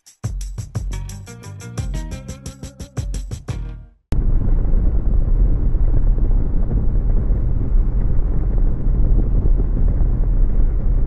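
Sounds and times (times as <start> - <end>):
wind rush: 4.1 - 11.0.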